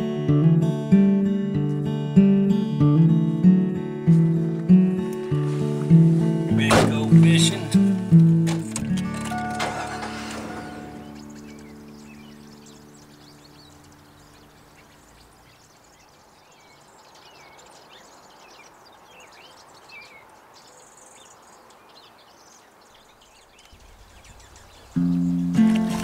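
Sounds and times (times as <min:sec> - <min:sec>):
small birds chirping: 0:09.0 - 0:26.0.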